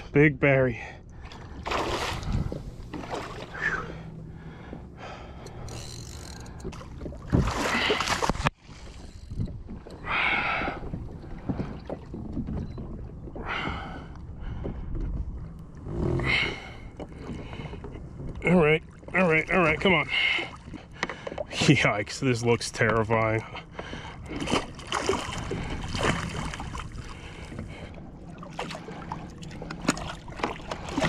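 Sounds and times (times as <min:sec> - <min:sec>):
wind: 0:00.0 - 0:31.0
water splashing by a kayak: 0:00.9 - 0:31.0
fish thrashing in water: 0:01.4 - 0:04.0, 0:06.0 - 0:08.5, 0:24.3 - 0:27.8.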